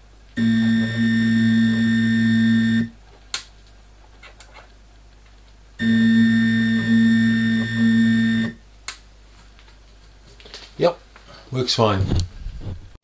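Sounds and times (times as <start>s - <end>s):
stepper motor humming: 0.4s - 2.9s, 5.8s - 8.6s.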